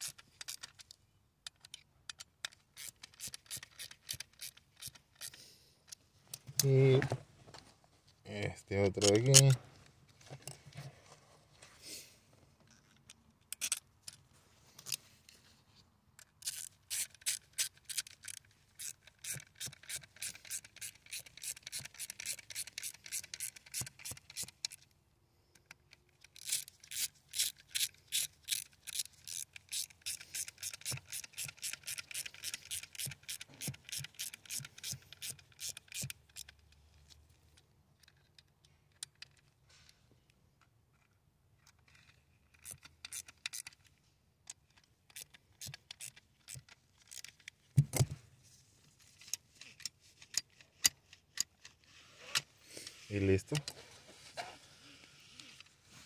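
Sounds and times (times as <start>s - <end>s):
screwdriver clicking and scraping: 0.0s - 6.8s, 9.0s - 9.6s, 12.7s - 15.0s, 16.2s - 24.9s, 25.5s - 39.5s, 41.0s - 48.2s, 49.0s - 53.8s.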